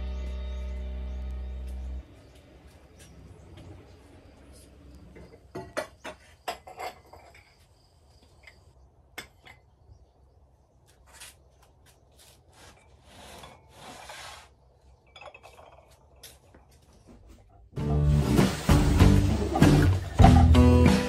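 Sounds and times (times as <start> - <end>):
pots and boards scraping: 5.1 - 7.6, 12.3 - 16.4, 17.2 - 20.8.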